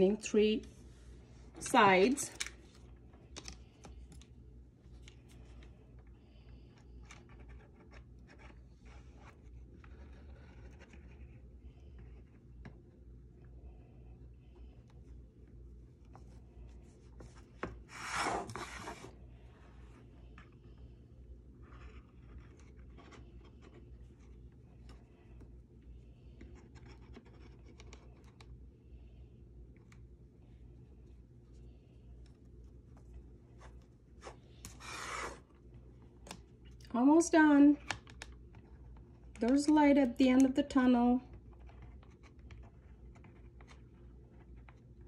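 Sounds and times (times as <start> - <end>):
low steady hum: 0.0 - 45.0.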